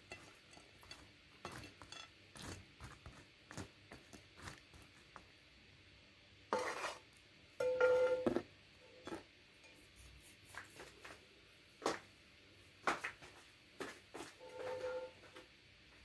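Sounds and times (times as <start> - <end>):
spatula scraping a frying pan: 0.0 - 4.6, 6.5 - 8.2, 14.4 - 15.2.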